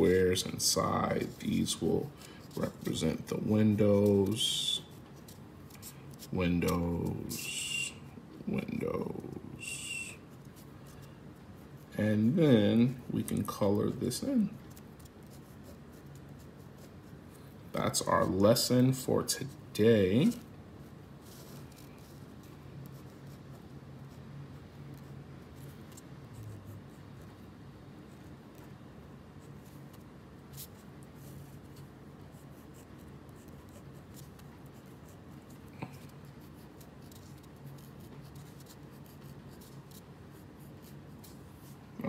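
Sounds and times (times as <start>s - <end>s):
faint low hum: 0.0s - 42.0s
ballpoint pen scratching on paper: 13.3s - 17.4s, 20.2s - 42.0s.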